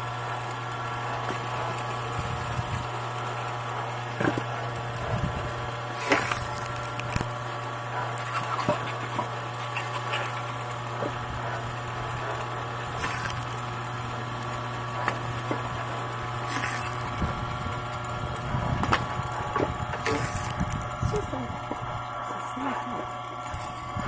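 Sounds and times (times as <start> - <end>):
log splitter drive humming: 0.0 - 24.0
wood cracking and splitting: 4.0 - 21.0.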